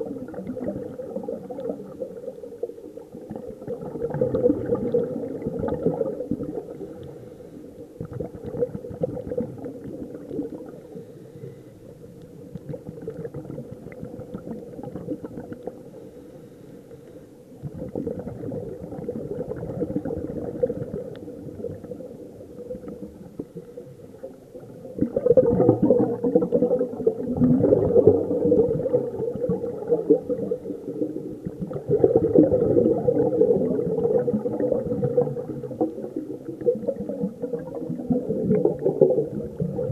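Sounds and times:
bubbles bubbling underwater: 0.0 - 7.3, 7.9 - 11.0, 12.0 - 16.1, 17.5 - 39.9
regulator breathing underwater: 6.7 - 8.0, 10.8 - 11.9.

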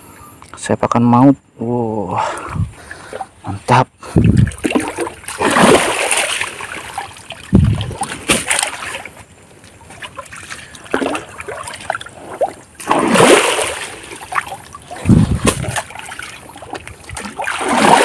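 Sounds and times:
water splashing from wading: 4.2 - 18.0.

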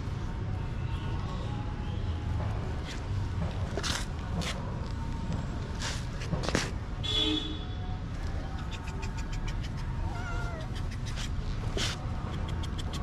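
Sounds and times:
cat meowing: 10.0 - 10.9.

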